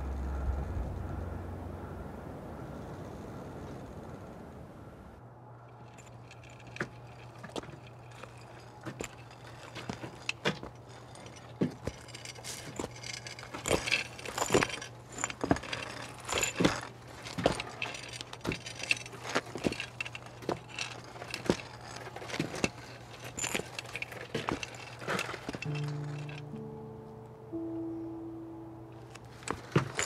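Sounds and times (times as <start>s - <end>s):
steady low hum: 0.0s - 21.8s, 25.5s - 30.0s
light clinks and knocks: 5.6s - 26.7s, 29.0s - 30.0s.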